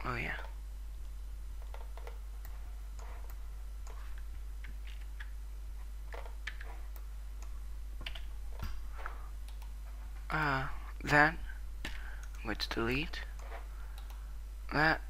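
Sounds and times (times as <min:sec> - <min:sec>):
low electrical hum: 0:00.0 - 0:15.0
mouse and keyboard clicks: 0:06.1 - 0:07.0.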